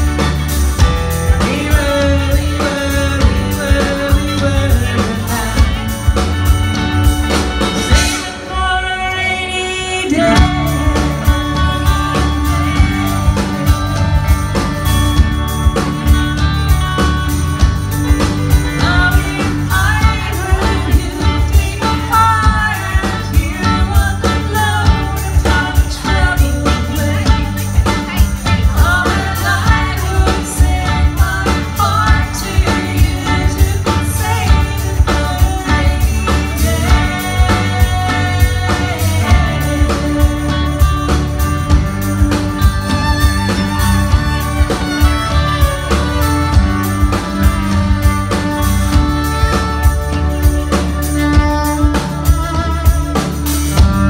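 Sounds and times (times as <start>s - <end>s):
live rock band playing: 0.0s - 54.0s
violin: 0.0s - 54.0s
woman singing lead vocal: 1.3s - 6.6s, 8.1s - 14.0s, 18.2s - 42.1s.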